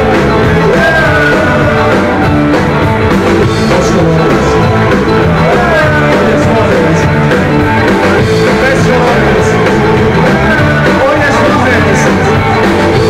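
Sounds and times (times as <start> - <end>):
man singing into microphone: 0.0 - 2.3, 3.5 - 7.3, 8.3 - 12.6
live rock band playing: 0.0 - 13.0.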